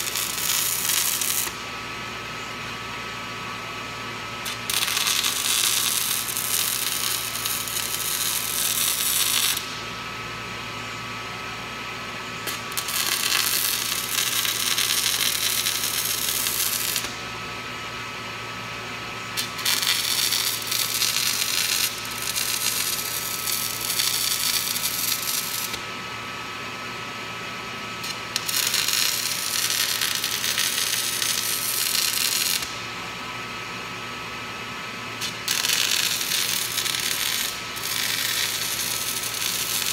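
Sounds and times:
welding arc crackling: 0.0s - 1.7s, 4.4s - 9.8s, 12.4s - 17.2s, 19.3s - 25.9s, 28.0s - 32.8s, 35.2s - 39.9s
electrical hum: 0.0s - 39.9s.

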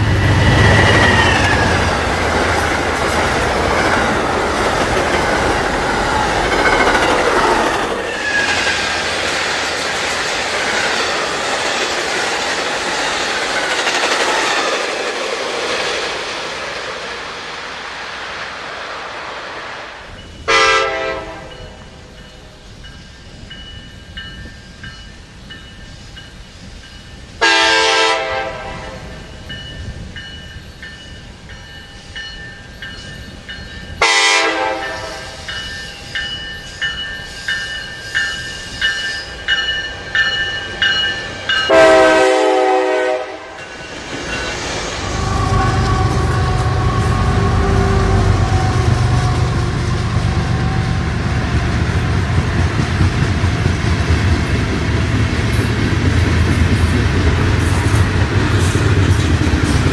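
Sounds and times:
diesel locomotive rumble: 0.0s - 10.0s, 40.2s - 59.9s
train wheels clicking over rail joints: 0.0s - 17.2s
train horn blasts: 20.4s - 21.8s, 27.4s - 29.2s, 34.0s - 35.5s, 41.7s - 43.6s, 45.1s - 51.0s.

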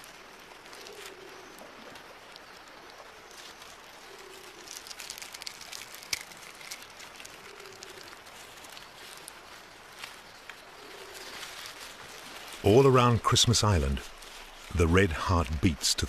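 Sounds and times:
dove-like cooing: 0.0s - 5.9s, 6.5s - 12.6s
sharp crackles and clicks: 0.0s - 16.0s.

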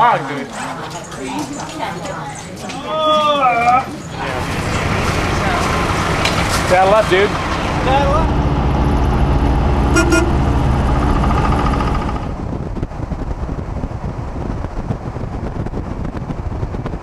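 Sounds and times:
engine and road rumble: 4.2s - 17.0s
wind noise: 8.5s - 17.0s
high-pitched tones: 9.9s - 10.6s.

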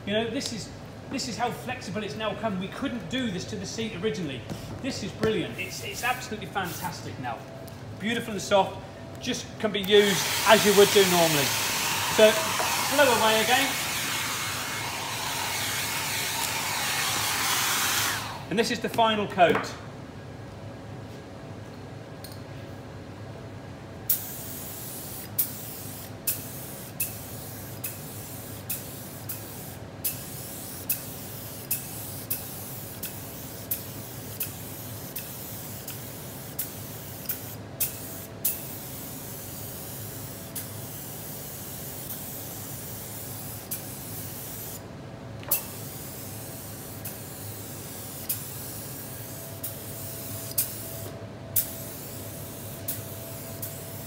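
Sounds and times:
spray gun hissing: 10.0s - 18.5s, 24.1s - 44.8s, 45.5s - 54.0s.

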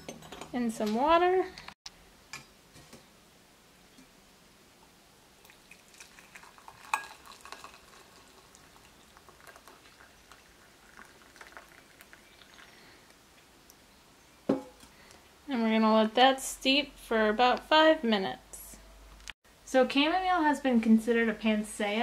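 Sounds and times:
water pouring into glass mug: 5.4s - 13.0s.

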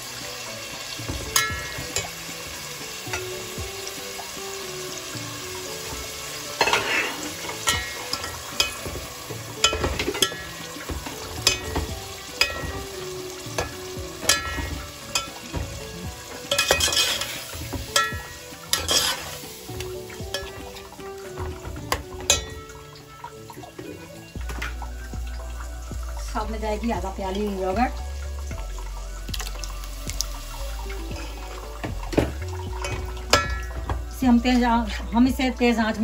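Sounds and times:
food sizzling in oil: 0.0s - 36.0s
metal skimmer scraping pot: 4.9s - 25.6s, 30.8s - 35.3s.

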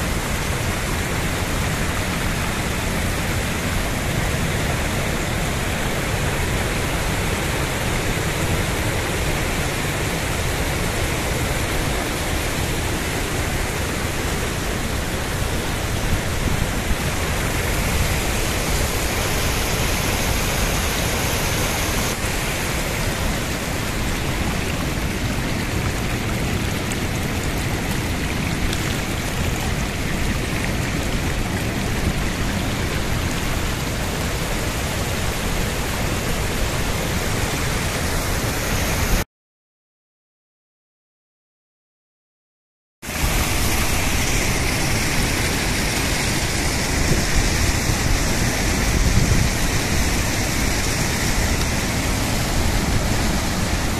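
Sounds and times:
fast-flowing river: 0.0s - 39.2s, 43.1s - 53.9s
water pouring over rocks: 6.8s - 38.2s, 43.1s - 53.9s.

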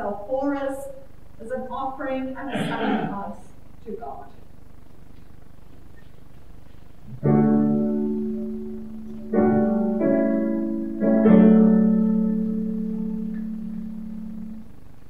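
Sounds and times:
slow piano chords: 7.0s - 14.9s.

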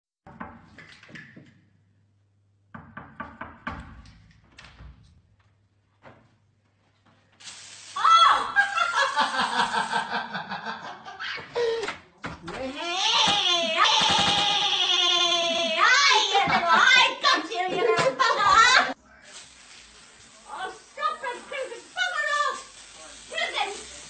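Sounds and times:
knocking on wooden door: 2.7s - 4.1s
bursts of laughter: 8.2s - 11.8s, 13.6s - 19.0s.

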